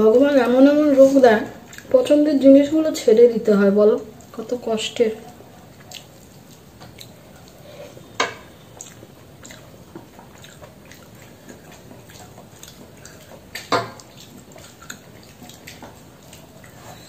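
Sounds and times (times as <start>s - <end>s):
wet chewing: 0.3s - 3.1s, 4.0s - 17.0s
fingers mixing rice on steel plate: 8.2s - 17.0s.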